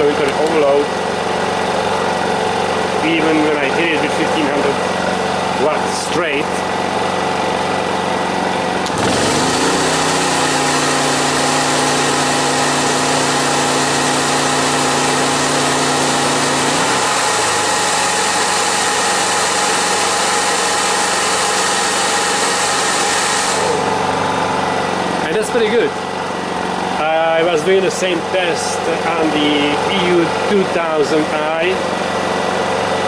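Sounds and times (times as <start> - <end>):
generator engine revving: 0.0 - 33.0
hair dryer blowing hiss: 8.9 - 24.0.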